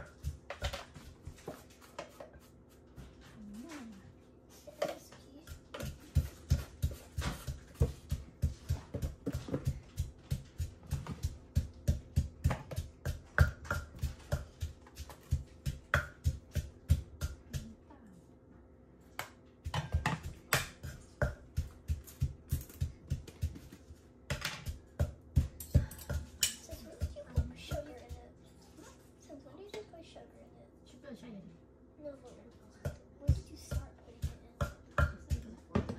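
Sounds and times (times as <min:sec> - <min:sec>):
pestle pounding in clay mortar: 0:00.0 - 0:02.7, 0:04.8 - 0:17.8, 0:19.2 - 0:28.4, 0:32.8 - 0:35.9.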